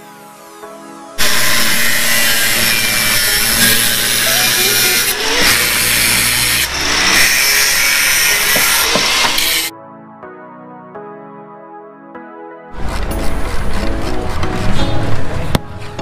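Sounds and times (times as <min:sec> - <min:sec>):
angle grinder cutting metal pipe: 0:01.2 - 0:09.7.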